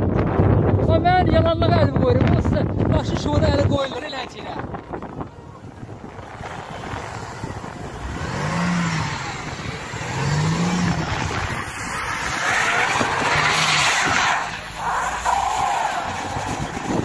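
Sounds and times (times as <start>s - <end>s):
tyres spinning on rough track: 4.6s - 17.0s
car engine revving: 5.8s - 17.0s.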